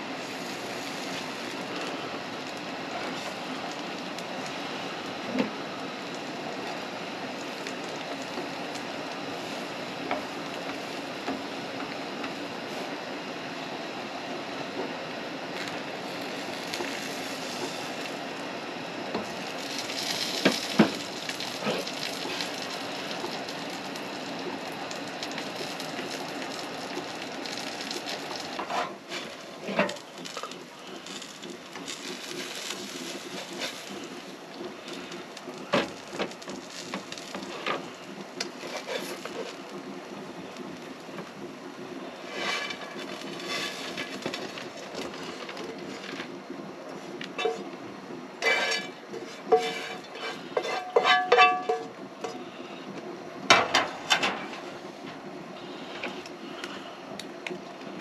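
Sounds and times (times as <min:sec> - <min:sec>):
food sizzling in a frying pan: 0:00.0 - 0:41.5, 0:42.1 - 0:46.3, 0:47.0 - 0:47.7, 0:48.4 - 0:52.0
pan and utensils knocking: 0:50.6 - 0:51.9.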